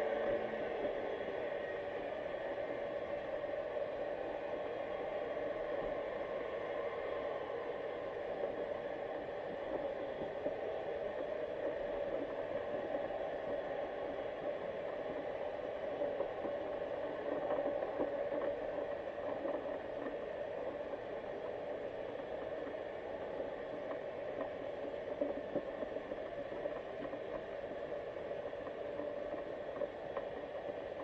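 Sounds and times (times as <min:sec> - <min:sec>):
faint hum: 0:00.0 - 0:31.0
light crackles: 0:06.6 - 0:31.0.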